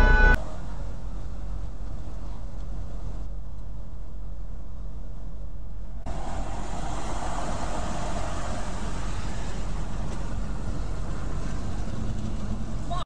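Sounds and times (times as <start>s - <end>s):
truck cab road noise: 0.0s - 13.0s.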